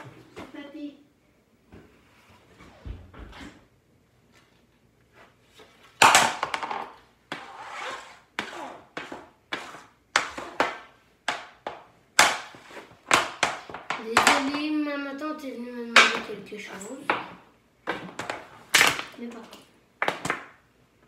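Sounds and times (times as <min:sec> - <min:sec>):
hockey stick and puck clacking: 0:06.0 - 0:14.7, 0:15.9 - 0:16.4, 0:20.0 - 0:20.6.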